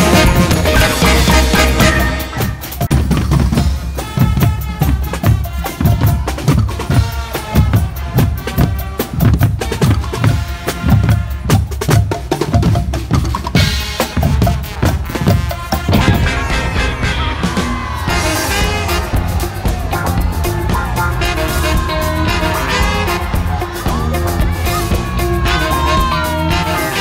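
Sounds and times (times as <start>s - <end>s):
snare drum: 0.0s - 26.4s
bass drums beating: 0.0s - 27.0s.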